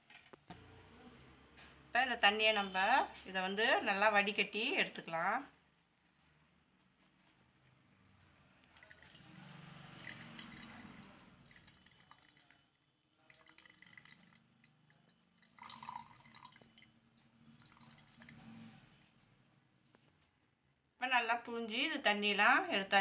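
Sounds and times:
juice dripping into metal pot: 0:08.6 - 0:18.8.

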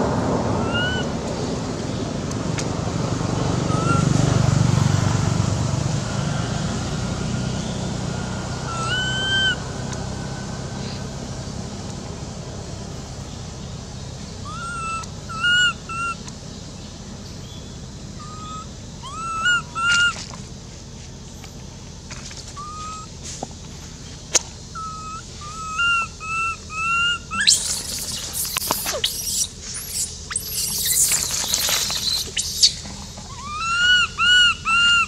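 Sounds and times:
baby monkey screaming: 0:00.5 - 0:01.2, 0:03.7 - 0:04.2, 0:07.7 - 0:10.6, 0:14.4 - 0:16.2, 0:18.2 - 0:20.2, 0:22.5 - 0:23.1, 0:24.7 - 0:35.0
baby monkey whimpering: 0:14.5 - 0:16.2, 0:18.2 - 0:20.1, 0:22.6 - 0:23.1, 0:24.8 - 0:35.0.

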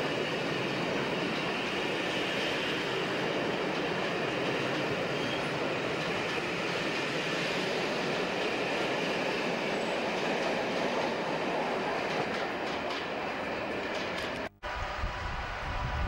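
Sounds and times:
train wheels rushing on rail: 0:00.0 - 0:16.0
train wheel clicks: 0:12.0 - 0:14.5.

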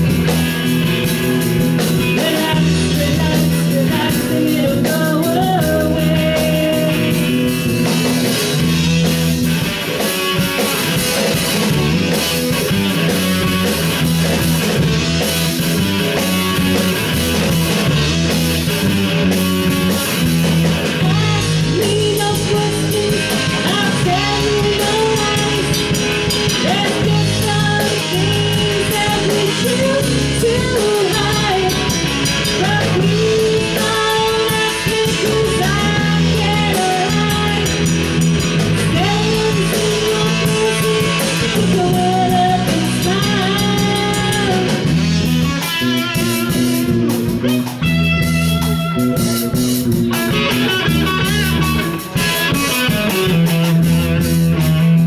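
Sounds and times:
bass guitar: 0:00.0 - 0:55.0
drum kit: 0:00.0 - 0:55.0
electric guitar: 0:00.0 - 0:55.0
woman singing: 0:02.0 - 0:07.6, 0:20.8 - 0:38.0, 0:38.8 - 0:45.0.

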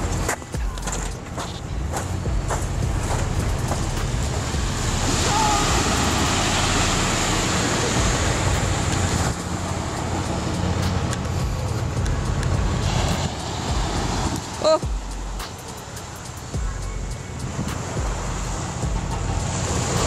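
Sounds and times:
small waves washing on sand: 0:03.0 - 0:11.9, 0:12.8 - 0:14.8.

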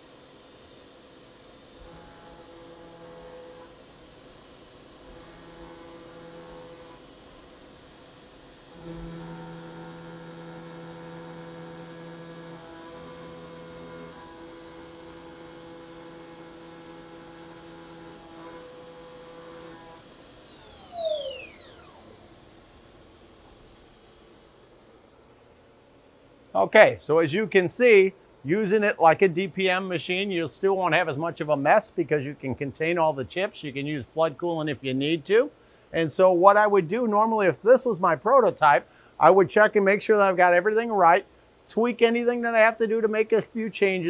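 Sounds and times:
high spindle whine: 0:00.0 - 0:23.8
low drive hums: 0:00.0 - 0:44.0.

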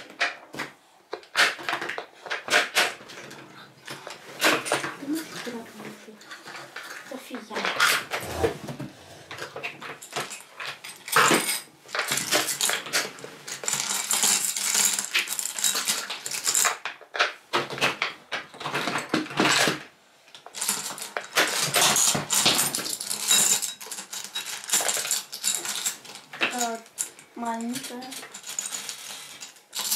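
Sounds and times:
shells rattling into plastic bottle: 0:09.5 - 0:19.8, 0:20.4 - 0:29.9.

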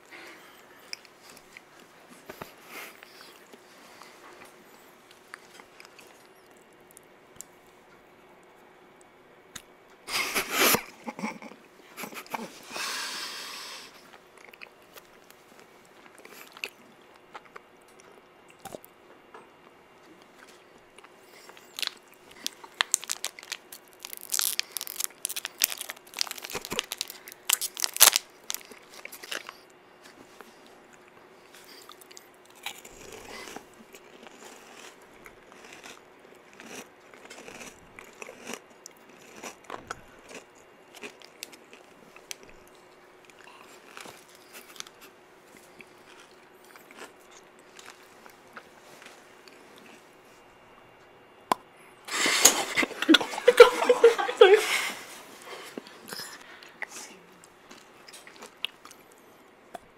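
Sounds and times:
crunching bites of candy: 0:21.0 - 0:29.7, 0:31.7 - 0:48.4
candy wrapper crinkling: 0:21.5 - 0:29.6.

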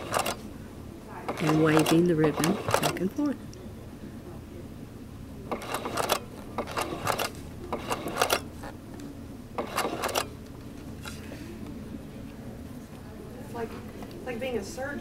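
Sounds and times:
sewing machine stitching: 0:00.0 - 0:00.4, 0:01.3 - 0:03.3, 0:05.5 - 0:08.5, 0:09.6 - 0:10.3.

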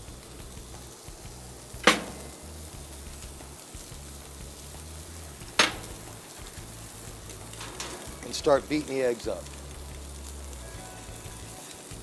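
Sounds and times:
steak sizzling on grill: 0:00.0 - 0:12.0
sharp clack: 0:01.8 - 0:02.4, 0:05.6 - 0:06.1.

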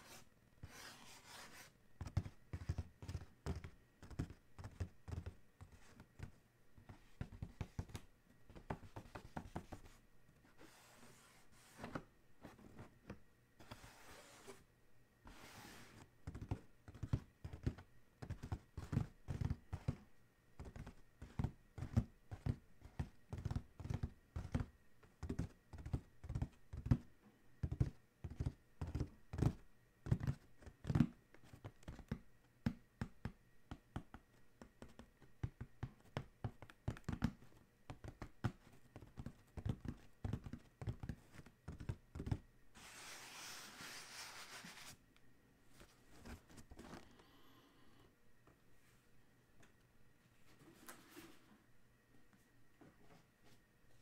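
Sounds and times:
fingers scratching cardboard: 0:00.0 - 0:08.0
fingertips tapping on cardboard: 0:02.0 - 0:10.0, 0:16.2 - 0:42.4.

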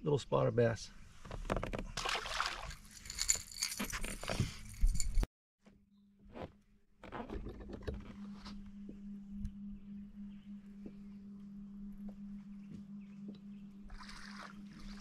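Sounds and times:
jangling handling noise: 0:02.7 - 0:05.3
electric trolling motor hum: 0:07.8 - 0:15.0.

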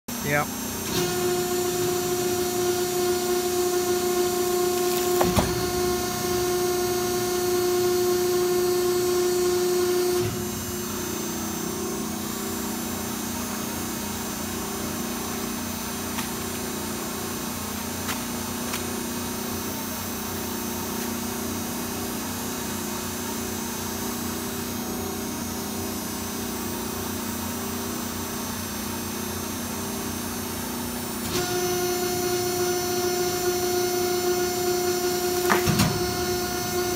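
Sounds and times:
machine motor whining: 0:00.8 - 0:15.4, 0:31.2 - 0:36.9.

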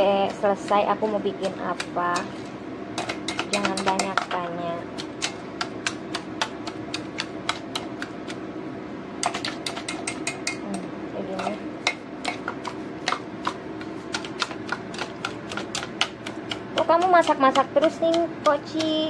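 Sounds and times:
whisk clattering in metal bowl: 0:03.0 - 0:04.3, 0:09.2 - 0:10.6, 0:11.8 - 0:19.0.

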